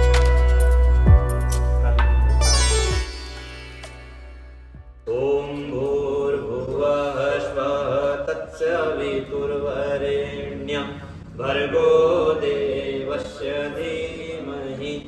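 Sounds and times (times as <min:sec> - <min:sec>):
music: 0:00.0 - 0:08.3
mantra chant with music: 0:05.0 - 0:15.0.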